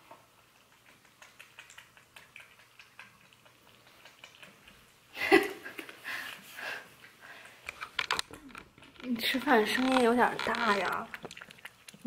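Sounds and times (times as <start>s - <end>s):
cat chewing food: 0.0s - 12.0s.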